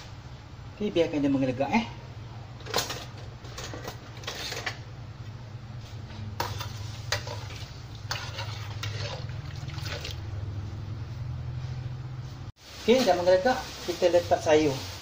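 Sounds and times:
metal spoon scraping a wok: 2.7 - 4.9, 6.1 - 9.3.

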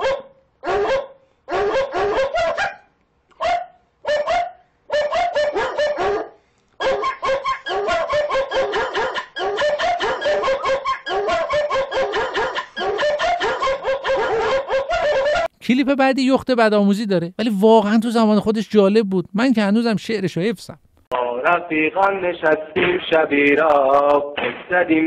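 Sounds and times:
dogs barking and yapping: 0.0 - 15.5.

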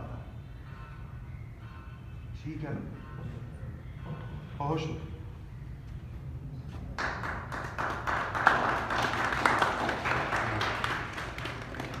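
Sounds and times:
people clapping: 6.9 - 12.0.

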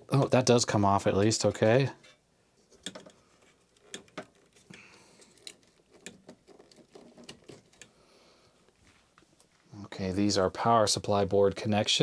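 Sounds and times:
wires rustling: 1.1 - 10.0.

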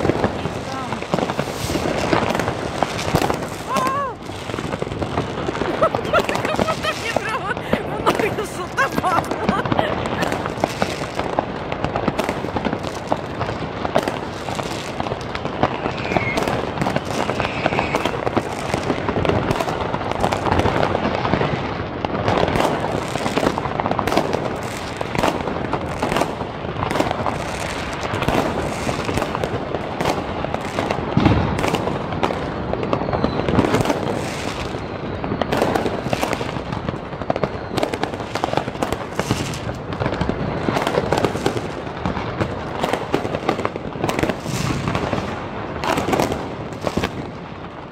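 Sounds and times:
fireworks bangs and crackling: 0.0 - 47.9
deep firework boom: 31.0 - 36.9.

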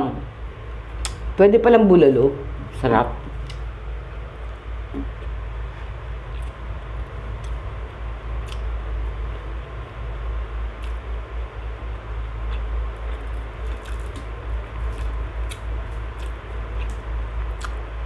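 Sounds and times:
steady low rumble: 0.0 - 18.0
person chewing: 4.4 - 7.7, 8.4 - 9.5, 10.7 - 11.1, 12.2 - 17.9.

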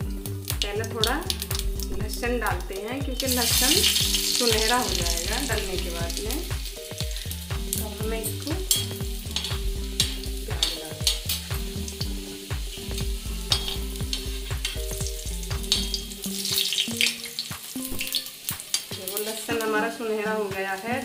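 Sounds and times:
garlic sizzling in hot oil: 0.0 - 21.0
steel spoon scraping a pan: 8.7 - 11.6.

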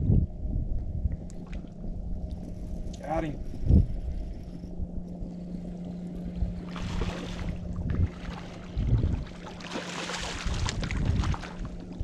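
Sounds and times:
steady low hum: 0.0 - 12.0
wind buffeting microphone: 0.0 - 12.0.

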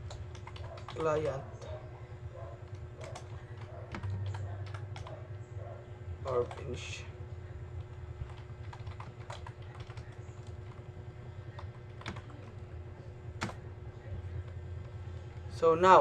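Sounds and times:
typing on computer keyboard: 0.0 - 1.4, 2.6 - 5.2, 8.2 - 10.8, 11.5 - 12.4
steady low hum: 0.0 - 16.0.

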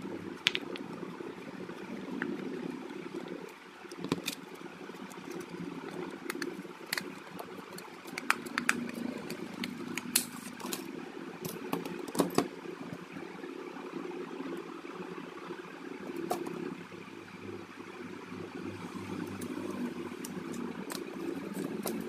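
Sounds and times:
steady low hum: 0.0 - 22.0
plastic card clicking and scraping: 5.1 - 10.8.

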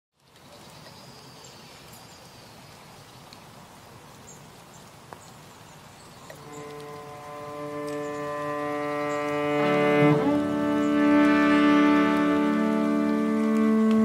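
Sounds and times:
outdoor ambience: 0.1 - 14.0
bowed string note: 6.4 - 14.0.

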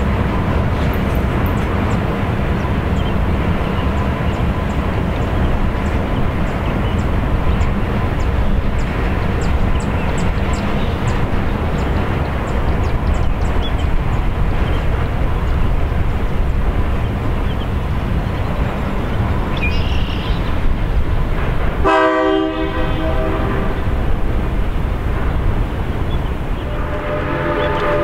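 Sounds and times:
locomotive horn blast: 21.8 - 24.0, 26.6 - 28.0.

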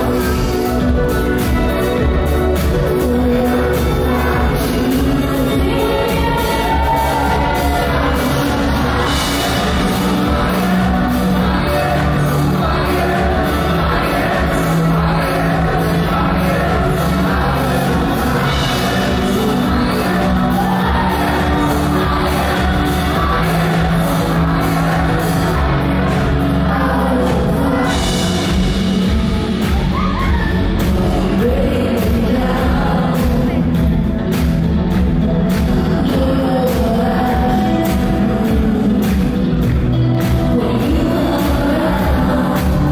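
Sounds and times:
live pop band playing: 0.0 - 42.9
woman singing lead vocal: 0.0 - 42.9.

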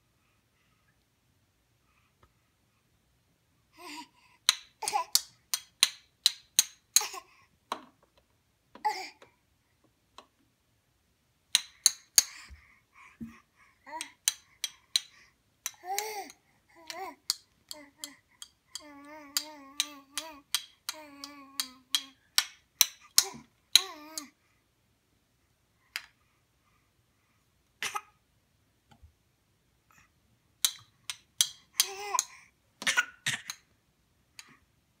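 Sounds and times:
baby cooing: 15.8 - 18.2, 18.8 - 22.1.

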